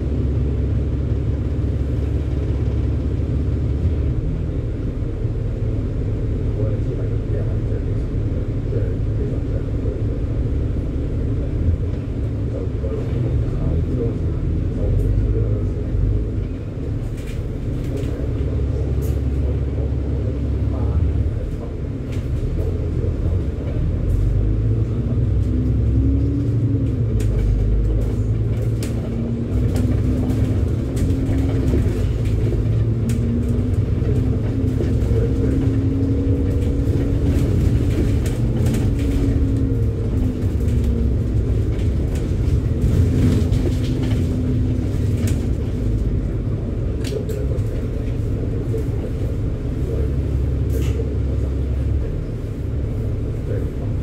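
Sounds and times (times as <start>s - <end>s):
bus engine and road rumble: 0.0s - 54.0s
rattles and clicks: 26.6s - 49.3s.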